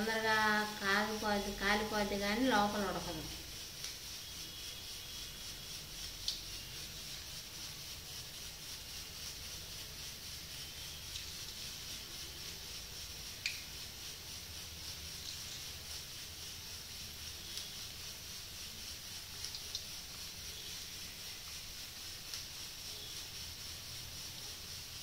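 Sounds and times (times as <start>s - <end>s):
chicken frying in oil: 0.0s - 25.0s.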